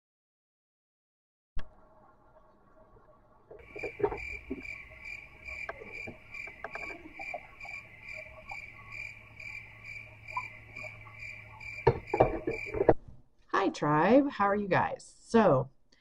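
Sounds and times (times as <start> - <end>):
crickets chirping: 3.6 - 12.9
faint knocks: 11.7 - 13.0.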